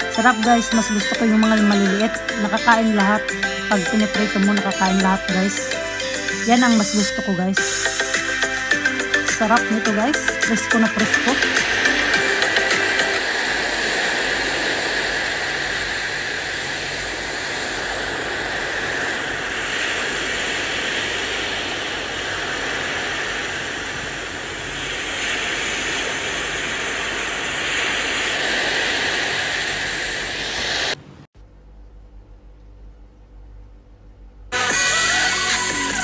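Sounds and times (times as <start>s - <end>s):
small waves washing on shore: 7.7s - 31.0s
wind: 11.6s - 31.3s.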